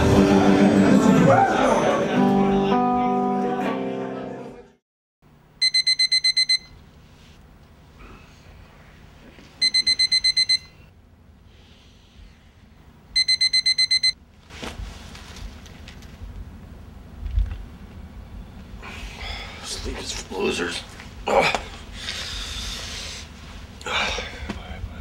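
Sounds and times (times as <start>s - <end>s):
alarm clock beeping: 5.6s - 6.8s, 9.6s - 10.8s, 13.2s - 14.2s
short rustling: 14.4s - 16.2s.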